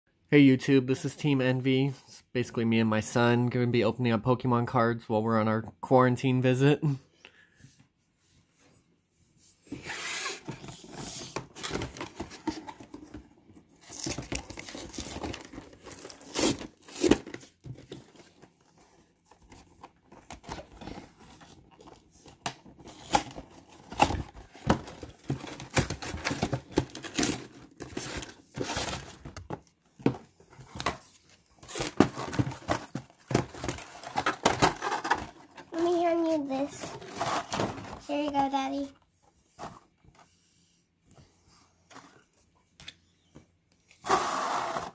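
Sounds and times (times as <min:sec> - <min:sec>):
cardboard tearing: 0:13.8 - 0:17.6, 0:31.6 - 0:37.8, 0:44.0 - 0:44.9.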